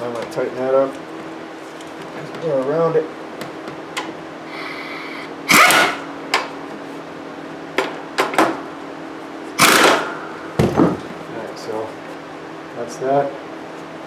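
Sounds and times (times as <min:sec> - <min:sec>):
impact wrench bursts: 0:04.5 - 0:06.1, 0:09.6 - 0:10.2
impact wrench whir: 0:04.5 - 0:06.5, 0:09.6 - 0:10.8.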